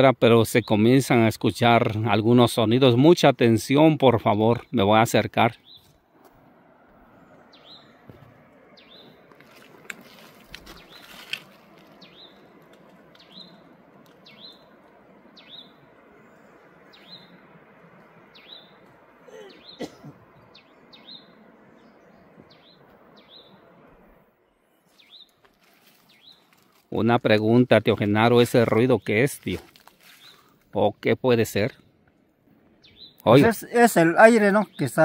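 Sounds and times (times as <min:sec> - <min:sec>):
bird chirping: 0:05.6 - 0:06.0, 0:07.0 - 0:09.3, 0:10.0 - 0:26.6, 0:30.1 - 0:30.5, 0:32.6 - 0:35.0
distant rushing wind: 0:05.6 - 0:24.8.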